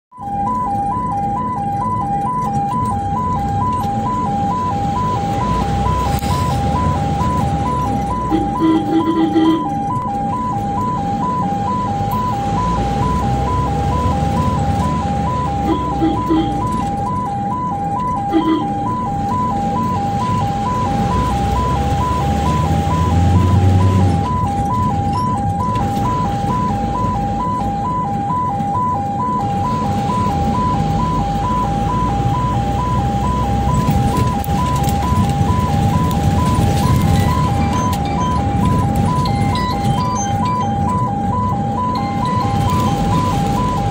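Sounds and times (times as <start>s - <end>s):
ambulance two-tone siren: 0.1s - 43.9s
engine and road noise: 0.1s - 43.9s
horn honks: 8.1s - 9.8s, 15.6s - 16.9s, 18.2s - 18.9s.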